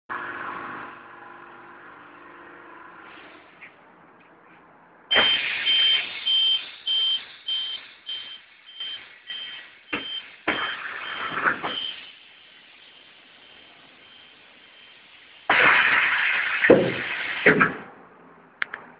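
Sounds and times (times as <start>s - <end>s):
high warning beeps: 5.1s - 12.5s, 13.4s - 15.1s.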